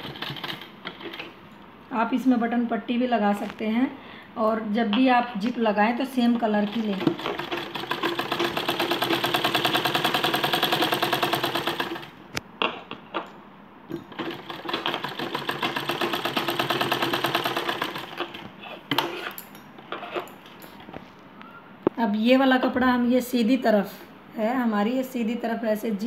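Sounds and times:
sewing machine stitching: 0.0s - 1.3s, 6.3s - 12.1s, 14.1s - 19.3s.

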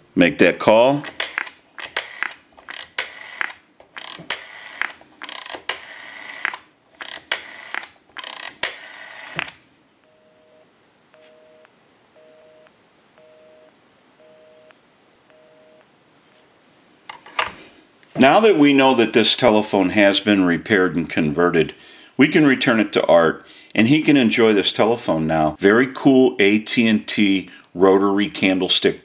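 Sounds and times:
rotary dial clicking: 1.0s - 9.6s
faint telephone busy signal: 10.0s - 15.9s.

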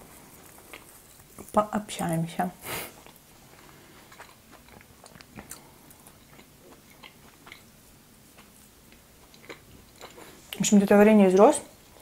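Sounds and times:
person chewing with mouth clicks: 3.0s - 10.6s.

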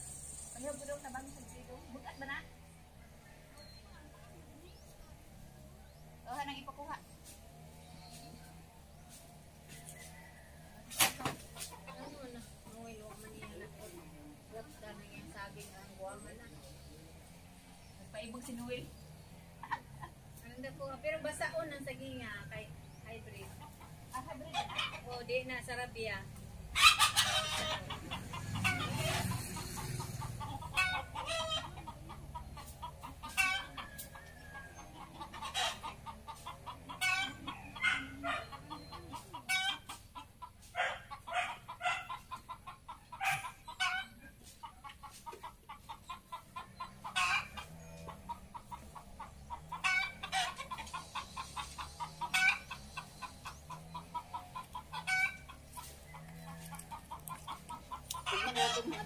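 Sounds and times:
chickens clucking: 0.0s - 59.0s.

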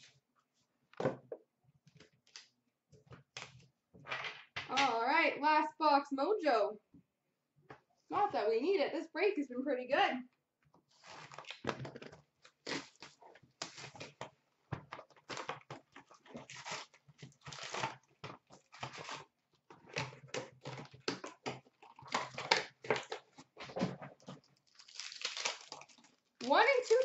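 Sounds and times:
card box being torn open: 12.5s - 14.2s, 16.4s - 18.0s
foil packs crinkling: 15.1s - 19.3s, 24.2s - 27.0s.

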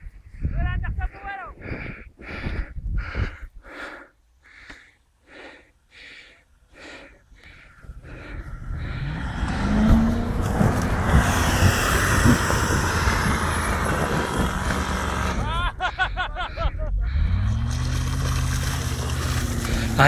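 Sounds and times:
person breathing heavily: 1.5s - 10.1s, 15.9s - 17.6s, 19.4s - 20.0s
car engine in snow: 6.9s - 20.0s.

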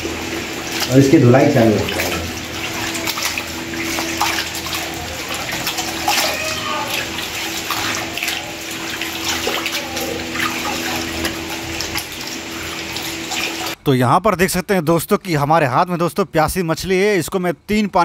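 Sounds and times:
tap water running into basin: 0.0s - 13.8s
hands swishing fish in water: 1.8s - 13.8s.

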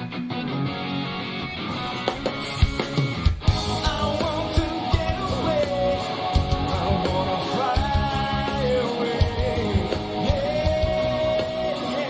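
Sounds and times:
distorted electric guitar: 0.0s - 12.0s
drum kit: 1.7s - 12.0s
man singing: 3.7s - 12.0s.

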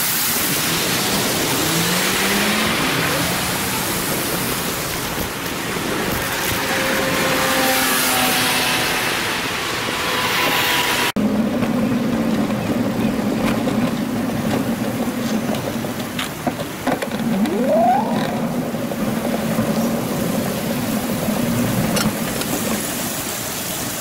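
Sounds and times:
traffic: 0.0s - 24.0s
wind noise: 0.0s - 24.0s
low hum: 17.1s - 21.5s.

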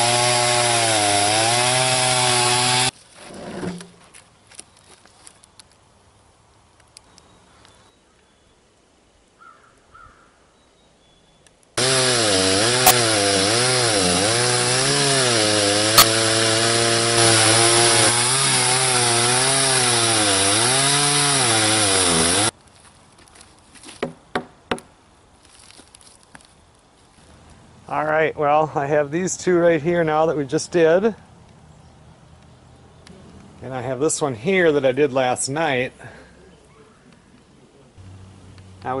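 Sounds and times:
chainsaw cutting log: 0.0s - 3.9s, 11.8s - 22.6s.

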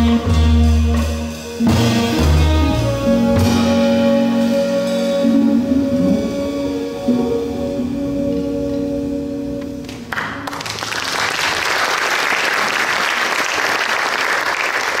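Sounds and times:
jazz band held chord: 0.0s - 10.1s
audience applause: 10.1s - 15.0s.

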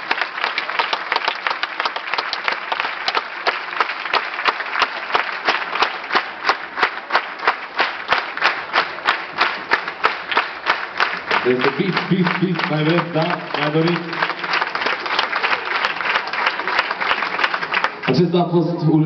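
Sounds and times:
audience applauding: 0.0s - 18.4s.

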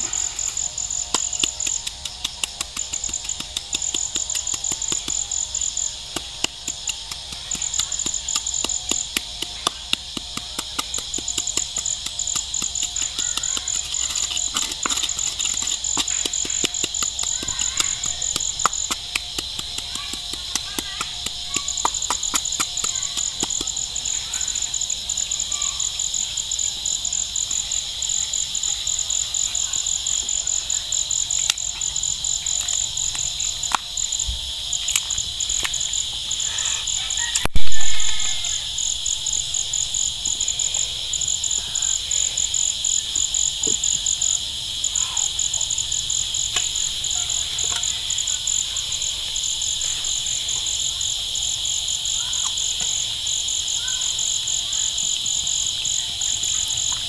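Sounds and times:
knife cutting squash: 0.0s - 23.8s
insects trilling: 0.0s - 57.0s.

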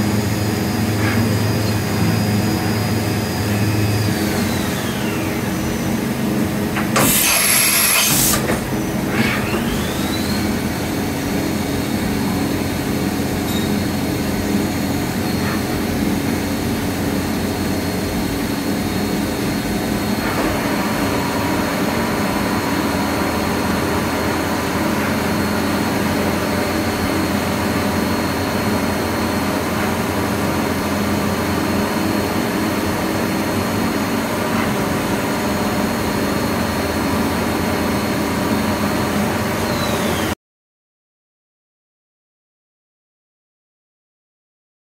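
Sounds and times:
machine hum: 0.0s - 7.0s
spindle whine: 0.0s - 40.4s
loud air blast: 6.9s - 10.2s.

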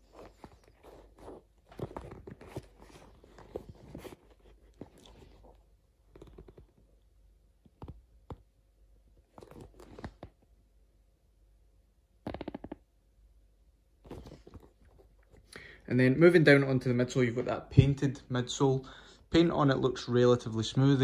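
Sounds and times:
small rustles and crackles: 0.0s - 6.9s, 9.2s - 10.5s.

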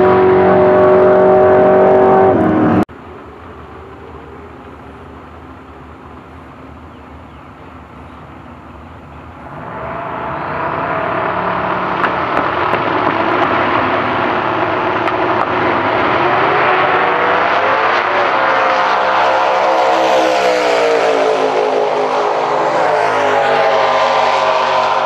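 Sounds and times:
drag car engine idling and revving: 9.3s - 25.0s.

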